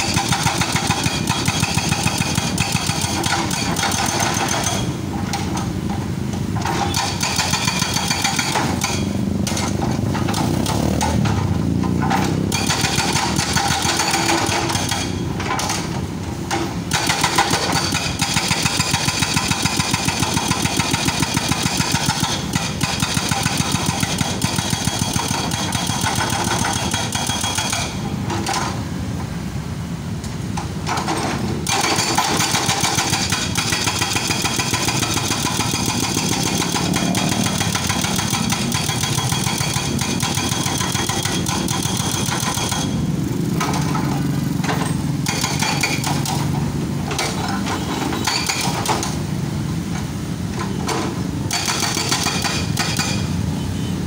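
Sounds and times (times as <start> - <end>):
hydraulic breaker hammering pavement: 0.0 - 6.0, 6.6 - 28.8, 30.9 - 49.3, 50.9 - 53.3.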